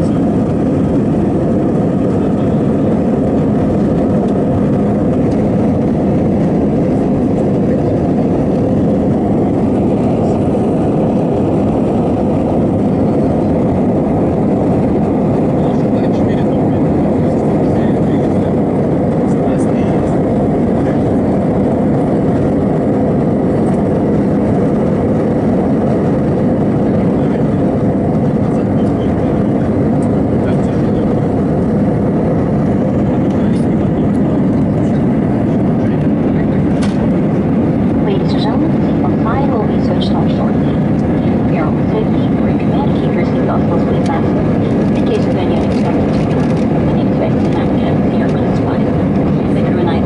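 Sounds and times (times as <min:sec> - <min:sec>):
jet engines rumbling in cabin: 0:00.0 - 0:50.0.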